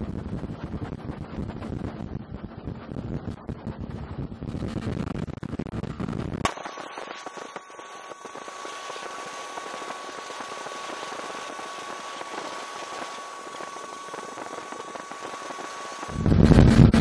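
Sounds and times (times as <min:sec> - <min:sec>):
low rumble: 0:00.0 - 0:06.5, 0:09.6 - 0:17.0
high engine whine over hiss: 0:00.0 - 0:17.0.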